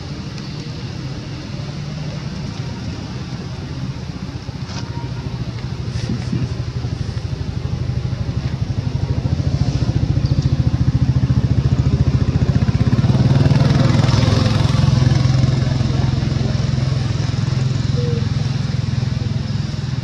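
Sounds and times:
small motorbike engine running: 4.8s - 20.0s.

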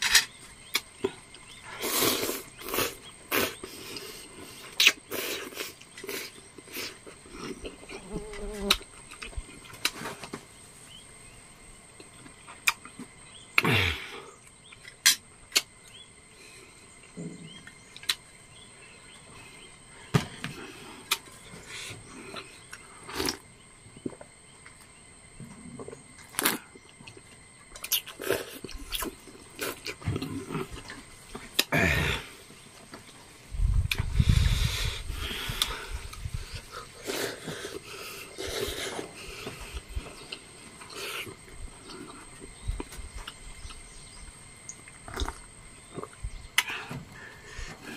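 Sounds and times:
faint high whine: 0.0s - 47.9s
chewing: 25.8s - 31.7s, 35.6s - 43.9s, 44.6s - 46.7s.

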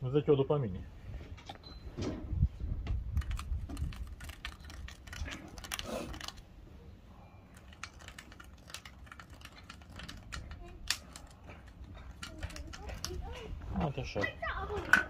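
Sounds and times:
metal parts and tools clicking: 3.2s - 6.4s, 7.5s - 13.4s.

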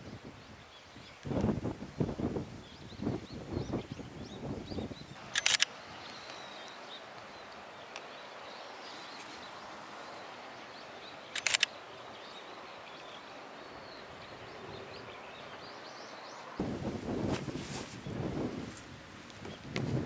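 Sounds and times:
outdoor background hiss: 0.0s - 20.0s
faint bird chirps: 2.6s - 16.6s.

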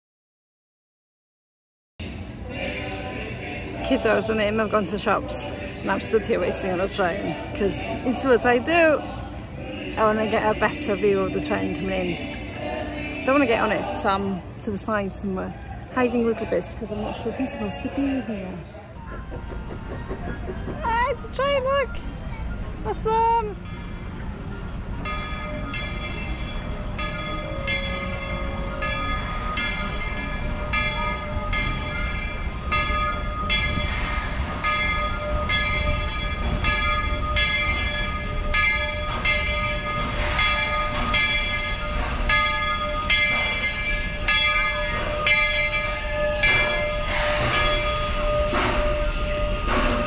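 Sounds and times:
steam locomotive rumbling: 2.0s - 50.0s
locomotive bell ringing: 2.1s - 18.7s, 20.6s - 50.0s
steam hissing: 33.4s - 35.2s, 39.0s - 50.0s.

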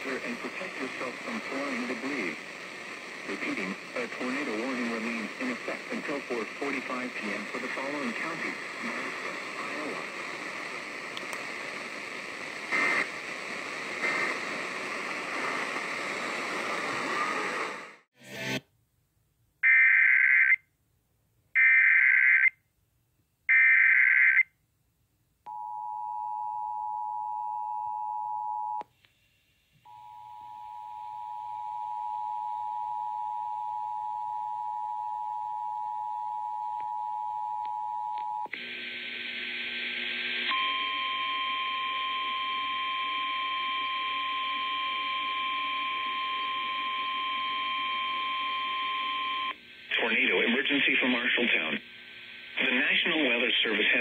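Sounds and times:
radio hiss: 0.0s - 18.6s, 38.5s - 40.5s, 49.5s - 54.0s
radio click: 3.2s - 11.9s, 12.7s - 13.1s.

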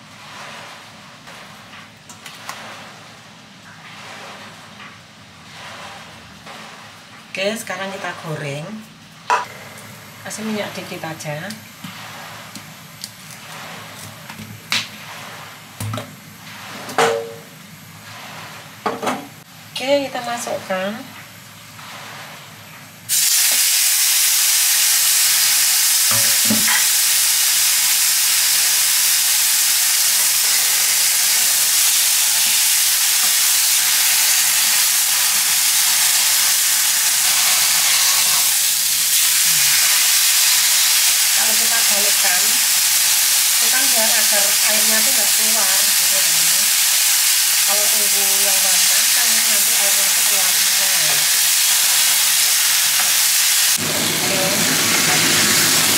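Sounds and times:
meat sizzling in hot oil: 23.1s - 55.9s.

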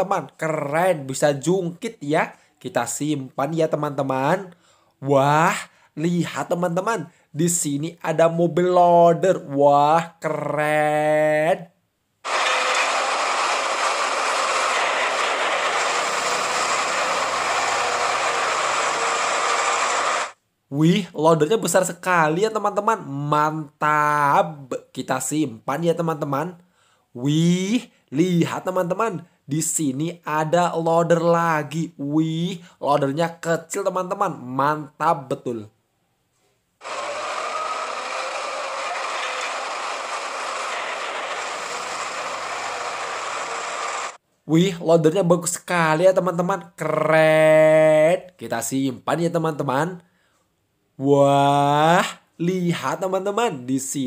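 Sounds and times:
wheel loader diesel engine: 12.3s - 20.3s, 36.8s - 44.2s.

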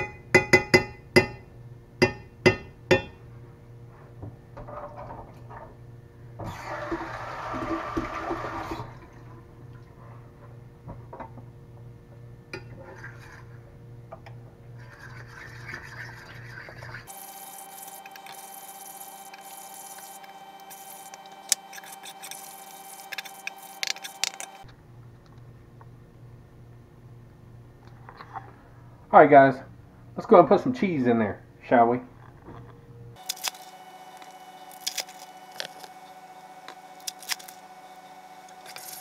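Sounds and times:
utensil scraping a skillet: 12.7s - 13.7s, 14.8s - 24.7s.

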